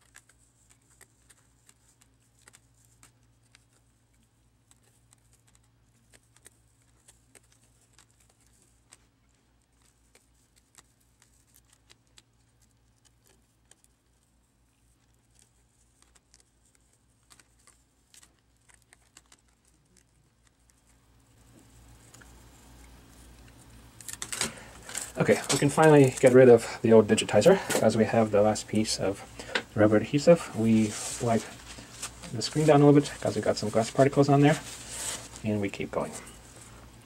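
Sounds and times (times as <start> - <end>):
peeling adhesive strips: 0.0 - 26.5
steady low hum: 0.0 - 37.0.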